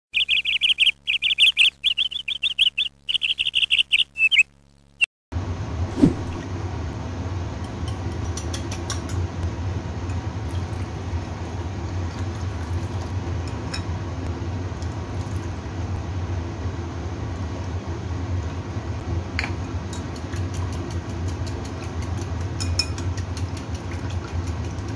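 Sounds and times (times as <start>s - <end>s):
birds chirping: 0.1s - 4.5s
steady low hum: 0.2s - 24.9s
whisk beating eggs in a bowl: 19.9s - 24.9s.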